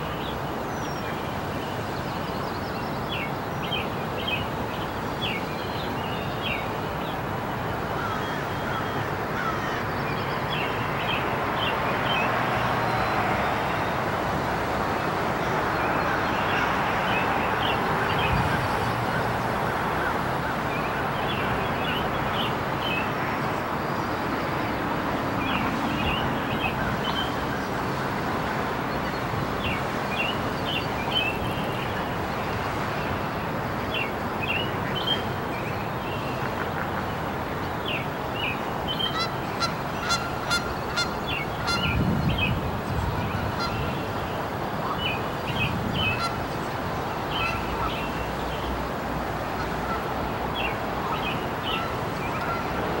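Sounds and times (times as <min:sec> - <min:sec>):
birds chirping: 0:49.8 - 0:53.0.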